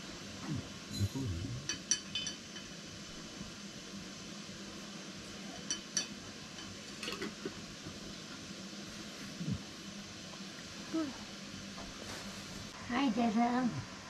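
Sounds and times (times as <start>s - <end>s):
faint steady hiss: 0.0s - 14.0s
glass jar and teapot clinking: 0.9s - 2.7s.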